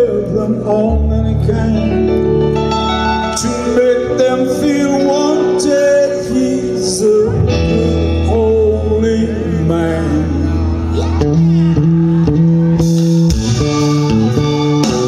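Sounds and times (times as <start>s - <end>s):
keyboard chords: 0.0s - 15.0s
live rock band playing: 0.0s - 15.0s
melodic lead guitar line: 0.0s - 15.0s
bass and drums: 7.3s - 15.0s.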